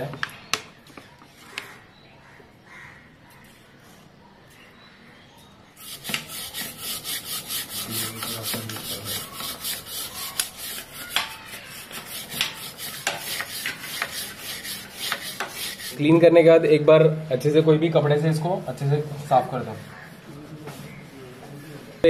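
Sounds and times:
brush scrubbing a chain: 5.8s - 16.0s.

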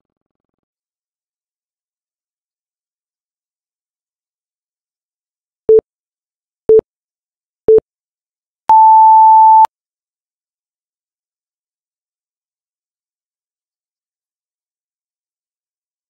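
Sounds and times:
long higher timer beep: 8.7s - 9.7s
short low timer beeps: 8.7s - 9.7s.

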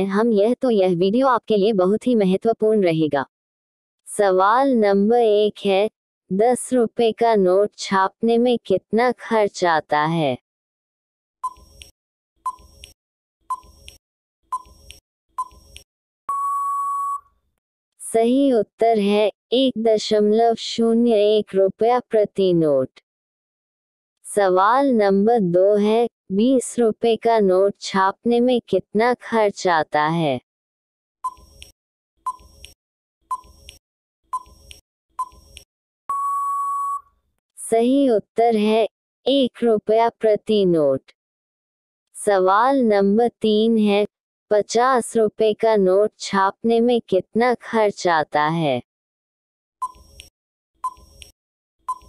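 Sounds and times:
electronic timer beeps: 11.4s - 12.9s, 13.5s - 17.3s, 31.2s - 31.7s, 32.3s - 37.1s, 49.8s - 52.0s
sharp clicks: 12.5s - 14.0s, 14.6s - 15.9s, 31.3s - 33.8s, 34.4s - 35.7s
short countdown beeps: 16.3s - 17.2s, 36.1s - 37.1s, 49.8s - 50.0s
long steady beep: 16.3s - 17.3s, 36.1s - 37.1s.

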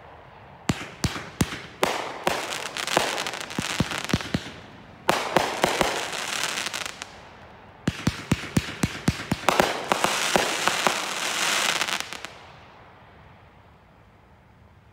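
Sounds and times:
firework crackling: 0.6s - 12.7s
firework shots and breaks: 0.7s - 7.1s, 7.9s - 12.4s.

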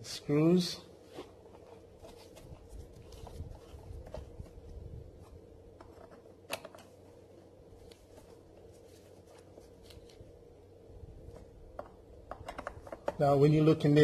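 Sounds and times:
faint hum: 0.0s - 14.0s.

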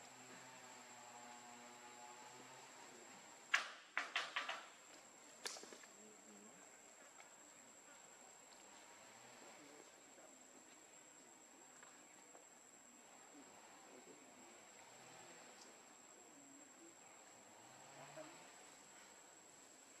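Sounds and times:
sharp clicks or knocks: 3.5s - 4.7s.

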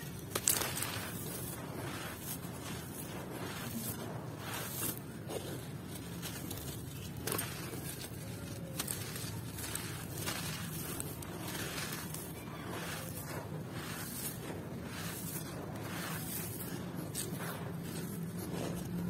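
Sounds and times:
sand and grit pouring: 0.0s - 19.0s
sand-cement chunks crunching by hand: 0.0s - 19.0s.

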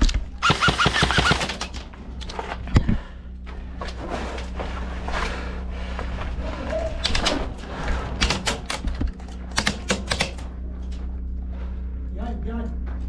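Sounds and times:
airsoft guns firing: 0.4s - 1.8s, 9.5s - 10.4s.

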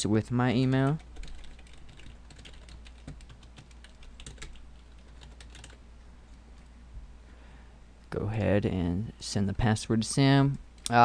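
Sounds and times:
typing on computer keyboard: 0.8s - 5.8s.

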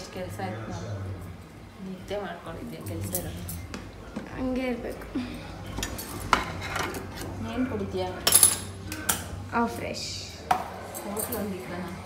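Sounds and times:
steel utensils clinking: 8.2s - 9.2s, 10.8s - 11.9s.

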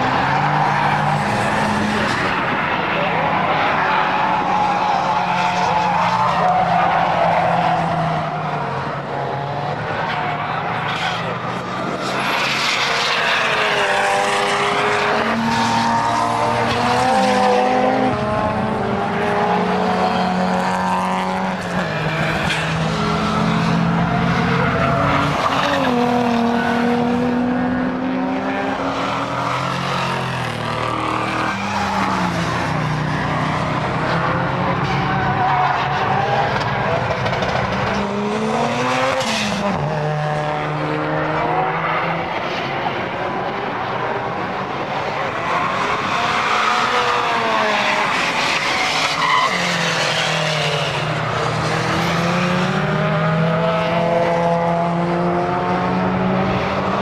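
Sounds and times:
tyres squealing and skidding: 0.0s - 9.2s, 9.9s - 18.2s, 21.4s - 27.0s, 28.7s - 40.0s, 45.2s - 52.4s
car engines revving: 0.0s - 57.0s.

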